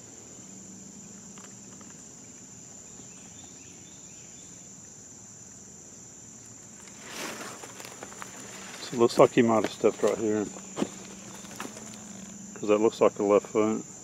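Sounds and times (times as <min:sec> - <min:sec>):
insects trilling: 0:00.0 - 0:14.0
brief rustle: 0:06.8 - 0:12.4.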